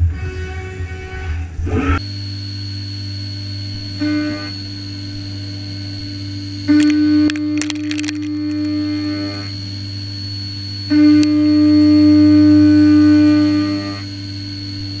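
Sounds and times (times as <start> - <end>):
low hum: 1.4 - 15.0
clicks: 6.8 - 8.7.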